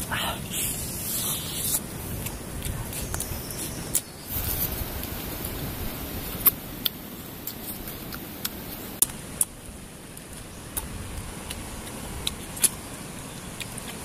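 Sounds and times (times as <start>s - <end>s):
steady high hiss: 0.0s - 14.0s
chewing and crunching: 0.6s - 4.1s, 10.2s - 14.0s.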